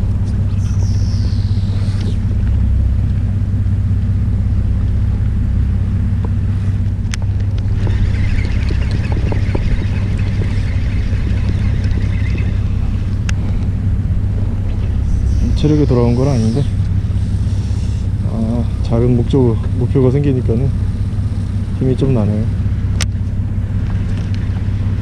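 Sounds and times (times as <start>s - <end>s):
fishing reel whirring: 0.0s - 2.6s, 7.0s - 22.2s
boat engine humming: 0.0s - 25.0s.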